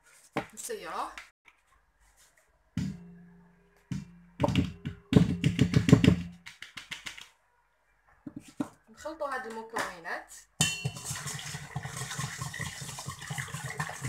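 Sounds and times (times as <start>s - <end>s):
sieve knocking on metal bowl: 2.8s - 3.1s, 10.6s - 11.4s
flour sifting through sieve: 10.8s - 14.0s.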